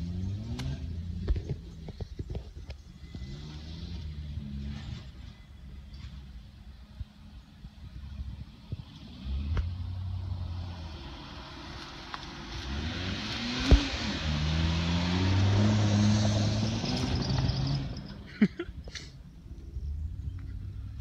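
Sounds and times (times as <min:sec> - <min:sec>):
suv engine pulling through sand: 0:03.1 - 0:06.3, 0:08.8 - 0:18.5.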